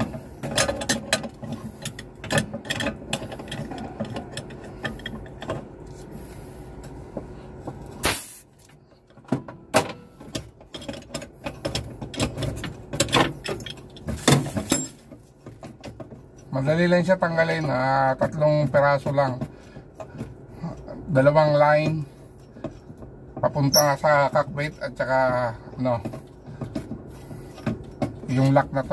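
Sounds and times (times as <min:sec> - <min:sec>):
hand tools clicking and knocking: 0:00.0 - 0:05.7, 0:09.1 - 0:28.9.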